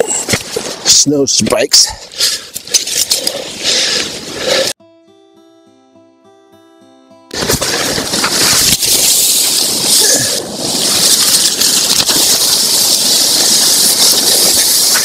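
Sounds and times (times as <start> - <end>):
nylon tarp rustling: 7.4 - 15.0.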